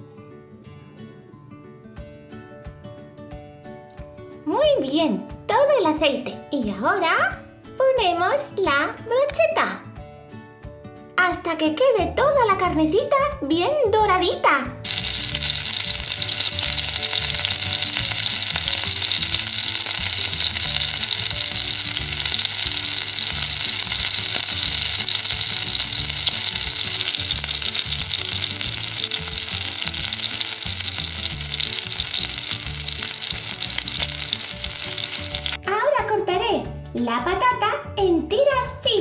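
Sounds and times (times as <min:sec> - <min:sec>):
chicken sizzling in frying pan: 0:14.8 - 0:35.6.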